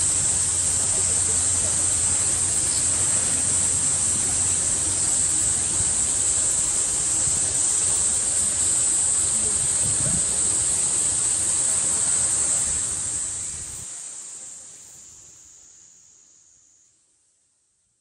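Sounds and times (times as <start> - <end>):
cicadas droning: 0.0 - 18.0.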